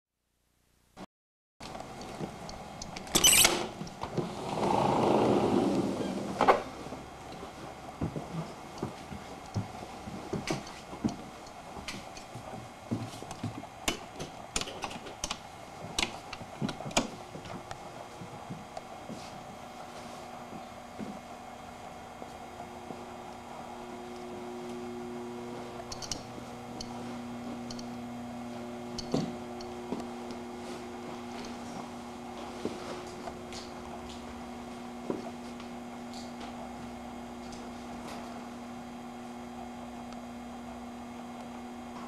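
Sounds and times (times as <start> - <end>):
faint steady hum: 1.6 - 42.0
door swinging open: 3.1 - 3.8.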